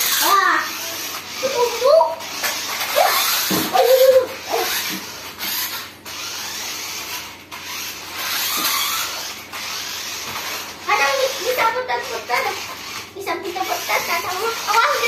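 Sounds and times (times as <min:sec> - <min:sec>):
child's voice: 0:00.0 - 0:02.3, 0:02.9 - 0:04.9, 0:10.8 - 0:15.0
toy truck motors whirring: 0:00.0 - 0:15.0
toy tyres on tiled floor: 0:00.0 - 0:15.0.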